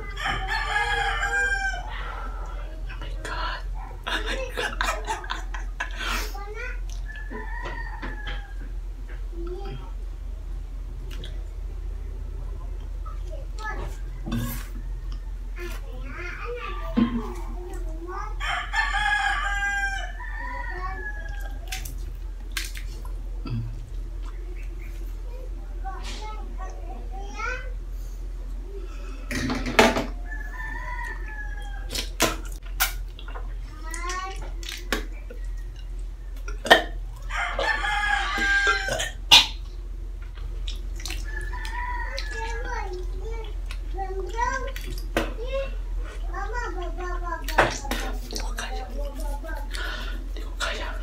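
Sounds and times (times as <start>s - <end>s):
rooster crowing: 0.0s - 2.7s, 7.0s - 8.8s, 14.0s - 15.6s, 18.4s - 21.8s, 30.1s - 32.2s, 37.2s - 39.2s, 41.1s - 42.8s.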